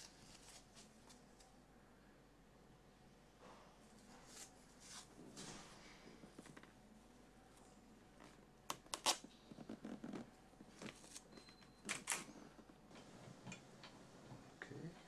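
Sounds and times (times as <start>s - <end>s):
soft rustling: 0.0s - 1.6s, 3.8s - 8.6s.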